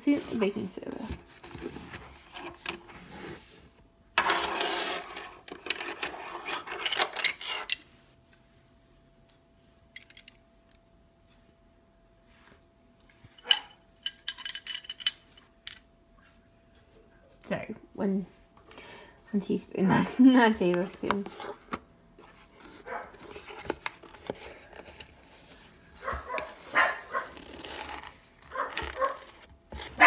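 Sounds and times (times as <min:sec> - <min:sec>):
spoon scraping in cardboard box: 0:26.3 - 0:30.0.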